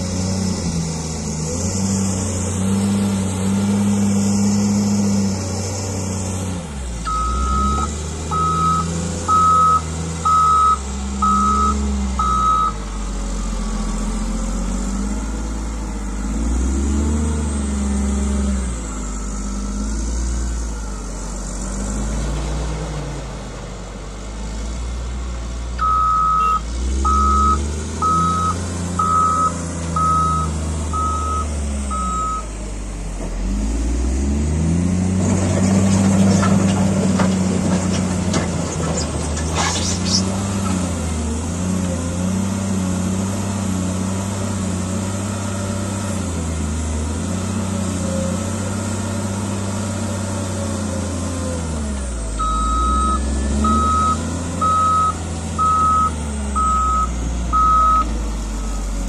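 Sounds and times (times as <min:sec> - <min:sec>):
diesel engine running: 0:00.0 - 0:59.0
reversing alarm beeping: 0:07.1 - 0:12.8, 0:25.8 - 0:32.5, 0:52.4 - 0:59.0.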